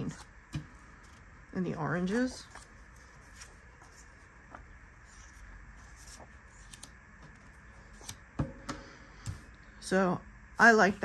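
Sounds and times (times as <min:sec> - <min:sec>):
low room hum: 0:00.0 - 0:11.0
paper sheets rustling: 0:02.0 - 0:08.2.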